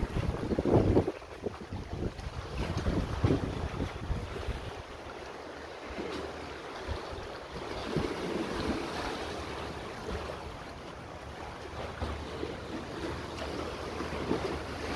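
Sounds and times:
wind gusting on microphone: 0.0 - 5.0
small waves lapping: 0.0 - 14.9.

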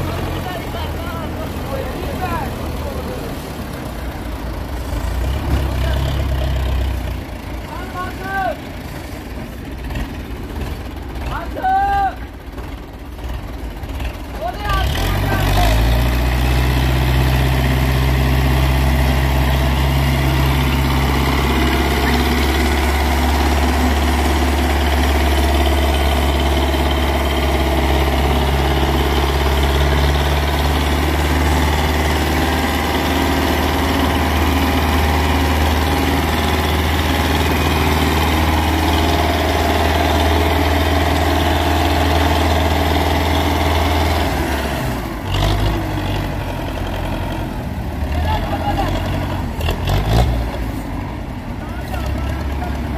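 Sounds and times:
tractor diesel engine droning: 0.0 - 52.9.

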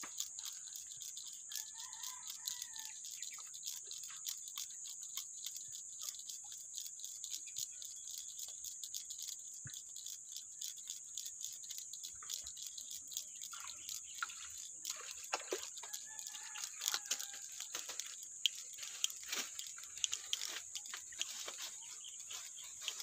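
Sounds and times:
steady high-pitched hiss: 0.0 - 23.0
rustling through leaves: 18.6 - 23.0.

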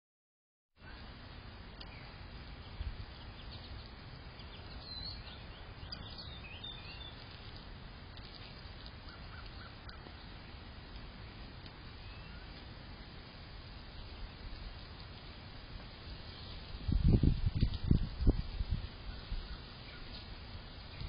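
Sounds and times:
low outdoor rumble: 0.8 - 21.0
birds chirping: 1.8 - 12.8, 19.0 - 21.0.

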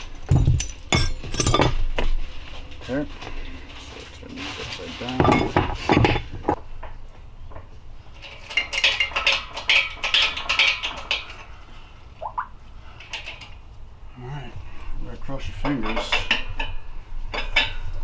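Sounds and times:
metal clinking and clattering: 0.0 - 2.2, 3.9 - 6.6, 8.2 - 11.5.

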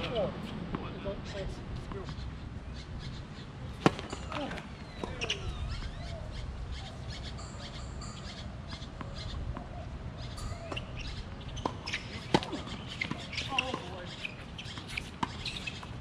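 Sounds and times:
birds chirping: 0.0 - 16.0
tennis ball bouncing: 3.7 - 5.4, 10.6 - 16.0
racket striking ball: 3.8 - 5.4, 10.4 - 15.9.

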